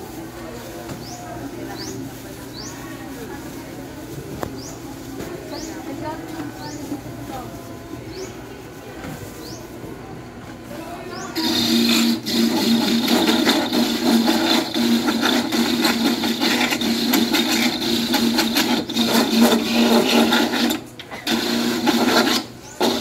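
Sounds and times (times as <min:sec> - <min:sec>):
motor hum: 0:11.3 - 0:23.0
coconut grater scraping grind: 0:11.4 - 0:23.0.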